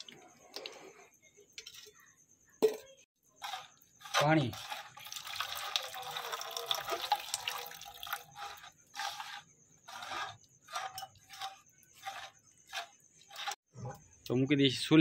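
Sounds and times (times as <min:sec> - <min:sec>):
liquid sloshing in pot: 0:02.6 - 0:13.6
water pouring into pot: 0:03.4 - 0:09.4.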